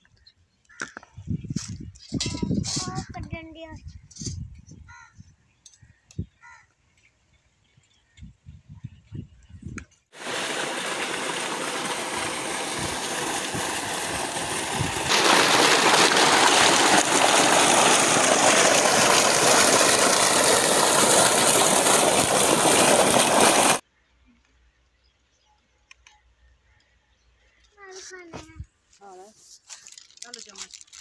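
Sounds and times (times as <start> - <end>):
water rushing over rocks: 10.2 - 23.8.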